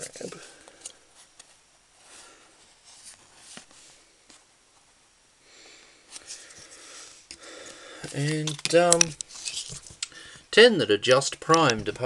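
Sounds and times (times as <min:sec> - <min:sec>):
plastic miniatures clicking on table: 0:11.4 - 0:11.9.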